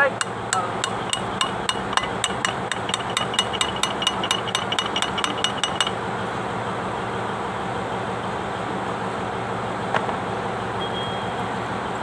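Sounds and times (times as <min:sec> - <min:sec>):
hammer tapping steel: 0:00.0 - 0:06.0.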